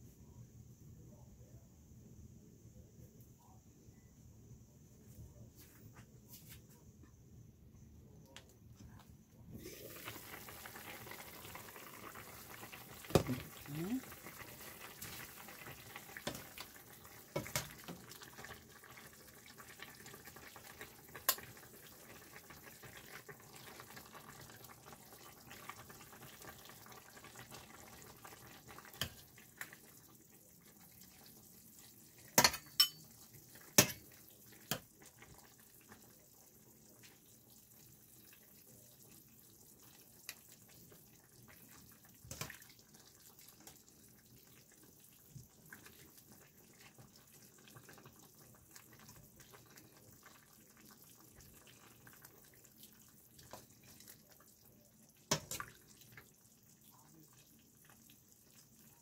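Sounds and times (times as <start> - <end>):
metal spoon clinking on pot: 32.4 - 33.1.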